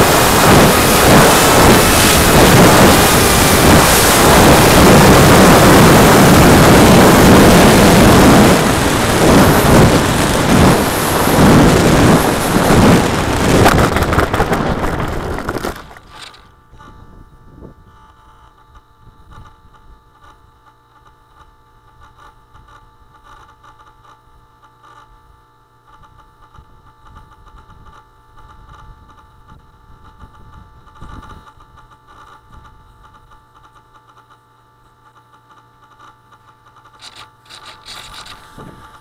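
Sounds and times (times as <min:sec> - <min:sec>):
wind buffeting microphone: 0:00.0 - 0:18.0, 0:26.6 - 0:31.7
faint electrical hum and whine: 0:00.0 - 0:39.0.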